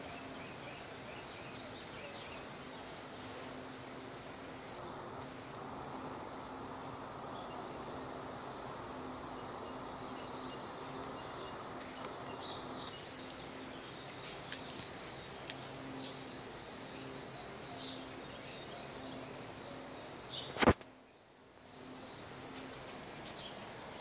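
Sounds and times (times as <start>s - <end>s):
faint high whine: 0.0s - 24.0s
outdoor background hum and hiss: 0.0s - 24.0s
light ticks: 14.2s - 16.4s.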